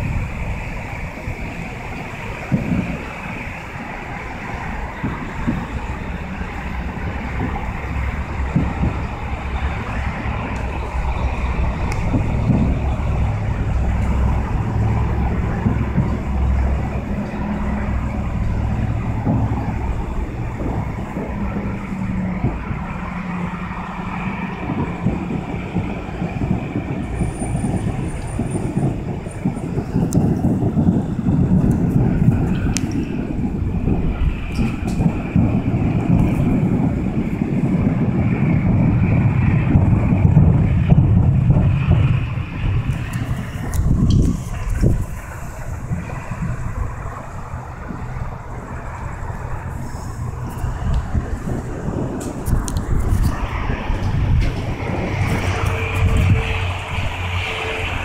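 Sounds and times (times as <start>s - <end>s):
city traffic: 0.0s - 58.0s
distant fireworks booms: 0.0s - 58.0s
wind on microphone: 0.0s - 58.0s.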